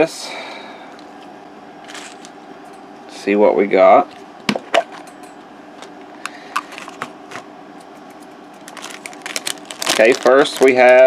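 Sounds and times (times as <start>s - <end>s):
background hum: 0.0s - 11.0s
toys and packaging clicking: 8.6s - 11.0s.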